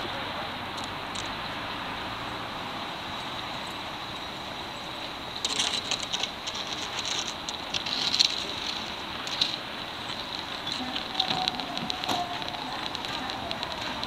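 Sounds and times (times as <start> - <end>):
sharp crackling and clicking: 0.0 - 1.4, 4.9 - 14.0
distant road traffic hum: 0.0 - 14.0.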